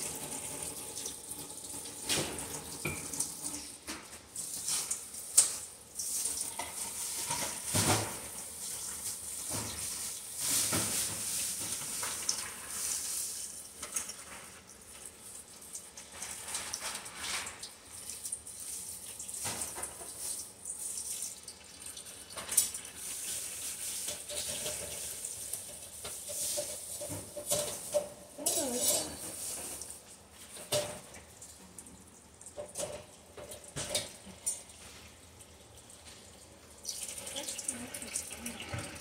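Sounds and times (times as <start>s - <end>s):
kitchen tap running into sink: 0.0s - 39.0s
dishes clattering: 24.0s - 29.8s.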